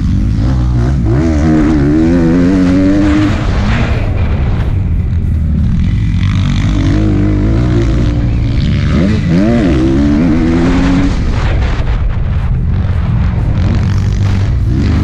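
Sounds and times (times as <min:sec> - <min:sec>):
dirt bike engine revving: 0:00.0 - 0:15.0
heavy low rumble: 0:00.0 - 0:15.0.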